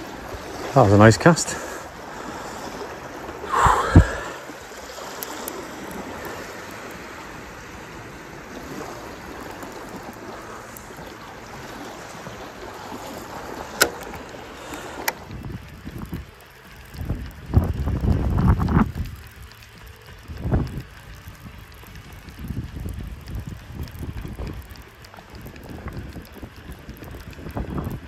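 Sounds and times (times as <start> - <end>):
gentle sea wash: 0.0 - 28.0
faint ticks: 1.4 - 28.0
wind on microphone: 2.5 - 7.7, 11.6 - 28.0.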